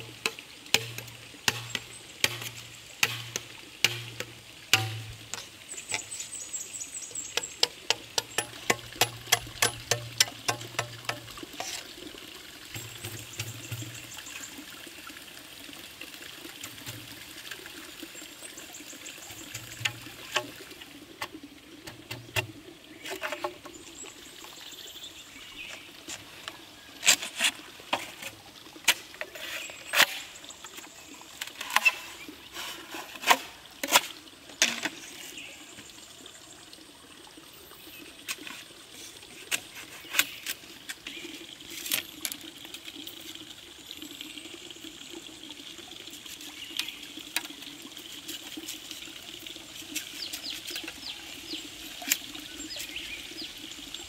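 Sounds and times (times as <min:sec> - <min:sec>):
stream trickling: 0:00.0 - 0:54.0
birds chirping: 0:05.2 - 0:10.2.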